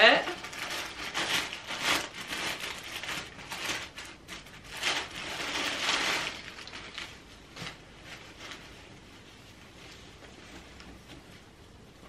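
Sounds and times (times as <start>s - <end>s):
garment rustling and crinkling: 0.0s - 12.0s.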